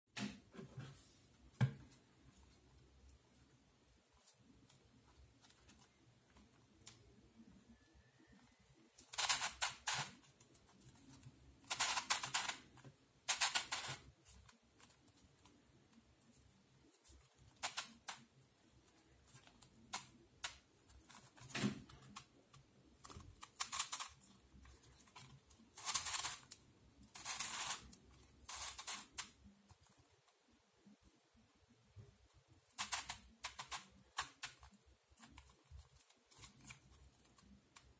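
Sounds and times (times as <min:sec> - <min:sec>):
puzzle cube clicking and rattling: 0:09.0 - 0:15.6, 0:17.0 - 0:30.0, 0:32.7 - 0:37.9.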